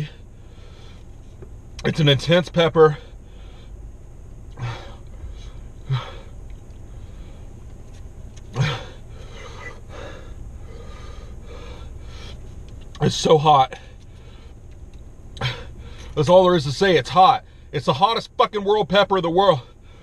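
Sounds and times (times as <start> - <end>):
man breathing hard and gasping: 0.0 - 1.1, 3.0 - 3.9, 4.5 - 7.6, 8.5 - 12.5, 15.4 - 16.2
steady low hum: 0.0 - 20.0.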